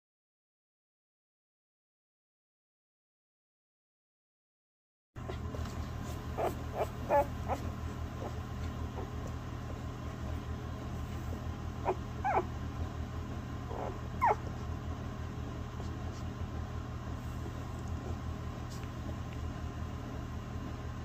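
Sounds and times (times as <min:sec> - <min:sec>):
puppies squeaking and whimpering: 0:05.2 - 0:13.0, 0:13.7 - 0:14.7.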